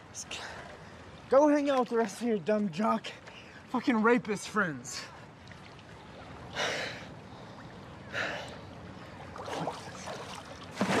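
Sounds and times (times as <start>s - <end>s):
pool water sloshing: 0.5s - 11.0s
loud splashes: 9.4s - 11.0s.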